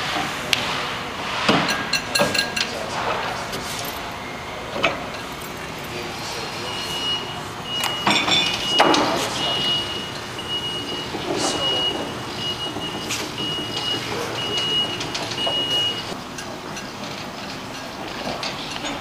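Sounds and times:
high beep: 0:06.6 - 0:16.2.

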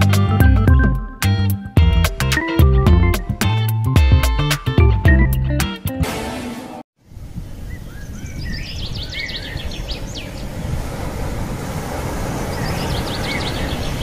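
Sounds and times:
bird chirping: 0:07.6 - 0:10.5, 0:12.5 - 0:14.0.

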